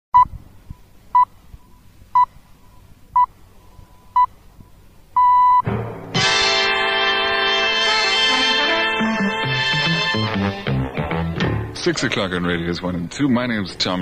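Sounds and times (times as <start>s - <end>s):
time signal beeps: 5.2s - 5.6s
music: 5.6s - 12.4s.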